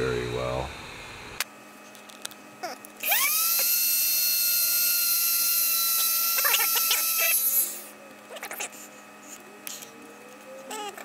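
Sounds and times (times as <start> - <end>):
rotary tool whining: 2.6 - 11.0.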